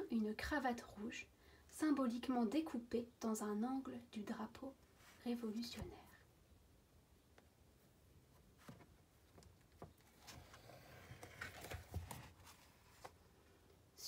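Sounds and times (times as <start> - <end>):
paper page rustling: 10.0 - 13.2.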